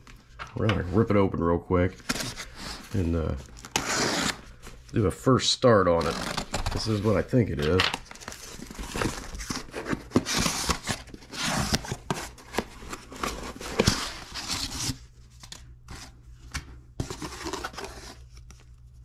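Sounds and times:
cardboard box tearing: 0:03.5 - 0:04.4, 0:06.0 - 0:07.1, 0:08.0 - 0:15.0, 0:17.0 - 0:18.2.

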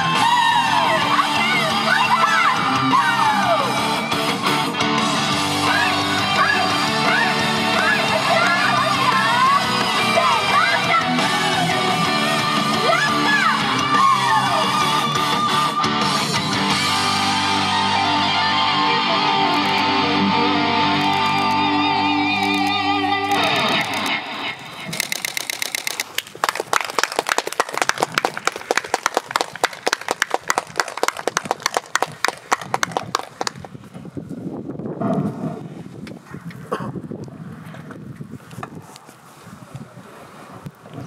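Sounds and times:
pop song with electric guitar: 0:00.0 - 0:24.6
dense patter of clicks: 0:24.9 - 0:32.1.

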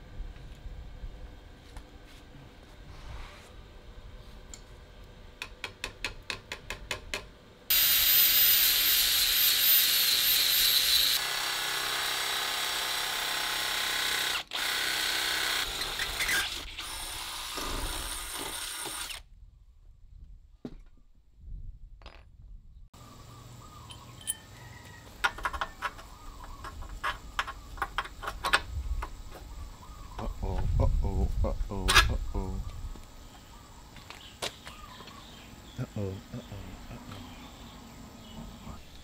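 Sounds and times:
welding arc hissing: 0:07.7 - 0:11.2
cordless drill boring metal: 0:07.7 - 0:19.2.

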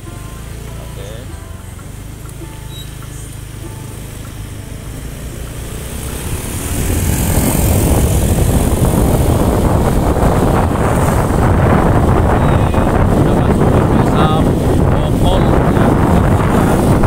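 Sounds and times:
motorcycle engine running: 0:00.0 - 0:17.0
wind rushing over microphone: 0:04.4 - 0:17.0.

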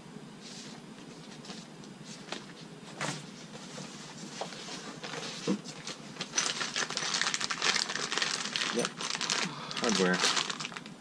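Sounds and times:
plastic bag crinkling: 0:04.9 - 0:11.0.

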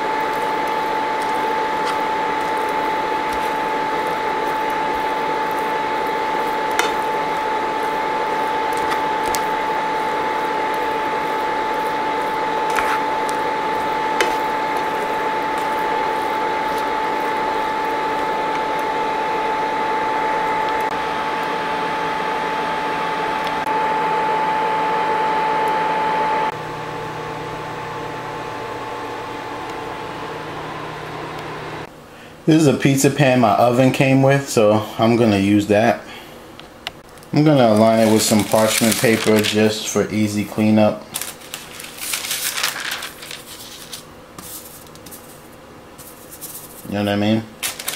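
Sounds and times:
induction cooktop whine: 0:00.0 - 0:47.9
spatula scraping a pan: 0:10.8 - 0:17.4.

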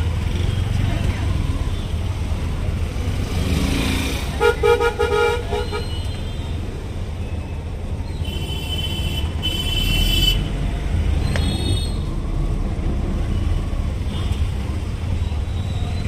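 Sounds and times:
auto-rickshaw engine running: 0:00.0 - 0:16.0
street traffic rumble: 0:00.0 - 0:16.0
vehicle horn honking: 0:04.4 - 0:06.1.

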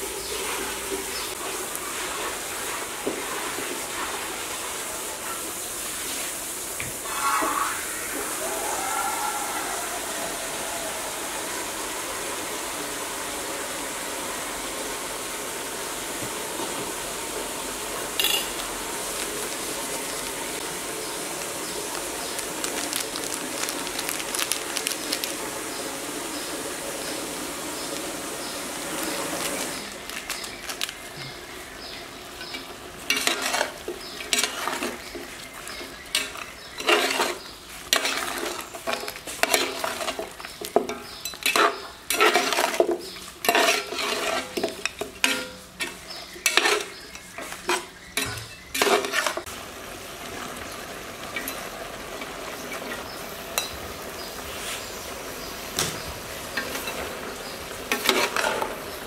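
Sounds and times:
food sizzling: 0:00.0 - 0:59.0
metal spoon scraping a pot: 0:32.4 - 0:35.0, 0:36.1 - 0:49.4, 0:57.9 - 0:58.7.

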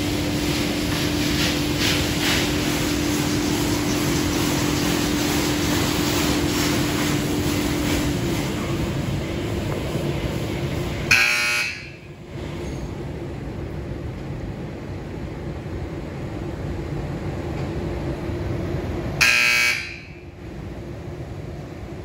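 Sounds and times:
loud buzzer tones: 0:11.1 - 0:12.0, 0:19.2 - 0:20.1.

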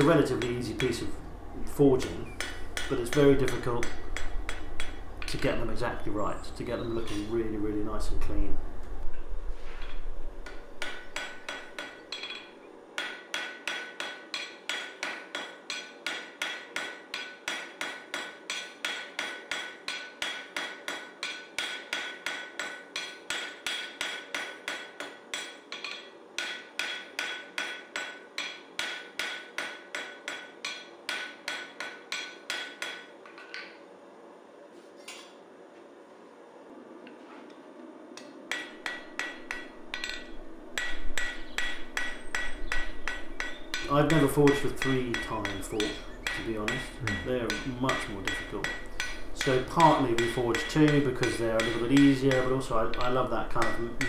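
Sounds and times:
hammer ringing on anvil: 0:02.0 - 0:05.0, 0:10.4 - 0:33.7, 0:38.5 - 0:54.0.

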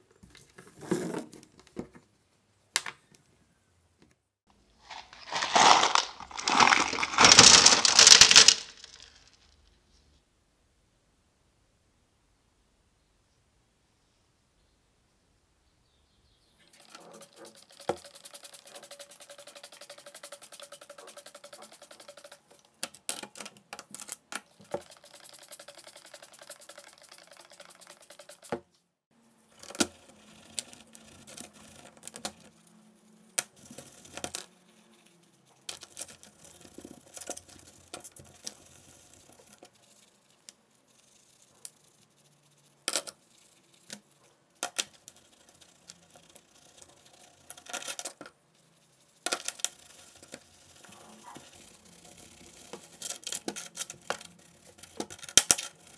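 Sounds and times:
wet bristle brushing: 0:04.8 - 0:09.2, 0:16.8 - 0:22.6, 0:24.6 - 0:28.6.

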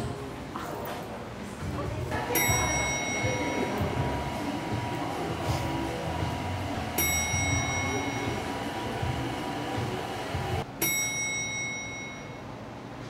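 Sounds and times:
bell-like chime: 0:02.3 - 0:04.4, 0:06.8 - 0:09.1, 0:10.8 - 0:12.5.

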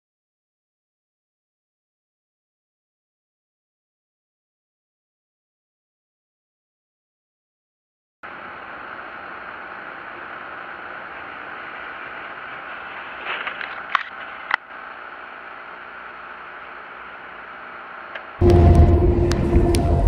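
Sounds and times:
loud engine sound: 0:08.2 - 0:20.0
tyre noise on wet road: 0:08.2 - 0:20.0.

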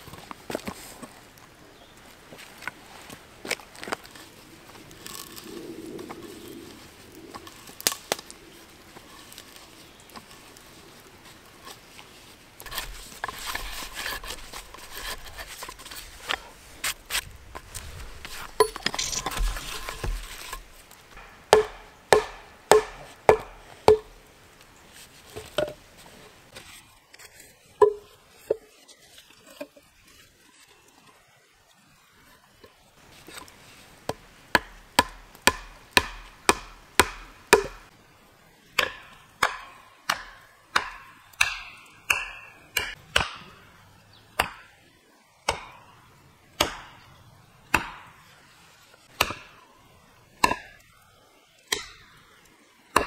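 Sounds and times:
rustling and handling noise: 0:00.0 - 0:21.6, 0:24.6 - 0:31.2
sharp ringing knocks: 0:21.2 - 0:24.1.

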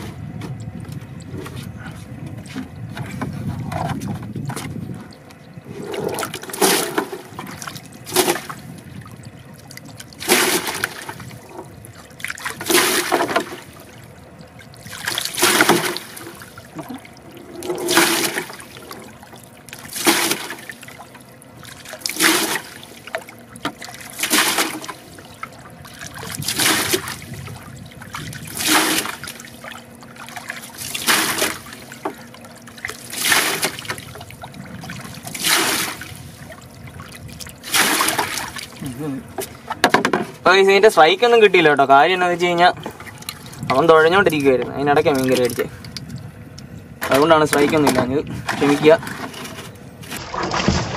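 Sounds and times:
water gushing into crate: 0:05.1 - 0:39.2, 0:47.1 - 0:50.9.

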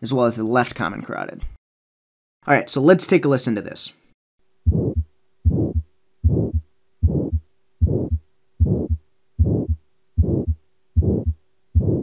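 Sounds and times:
heartbeat with murmur: 0:04.7 - 0:12.0.

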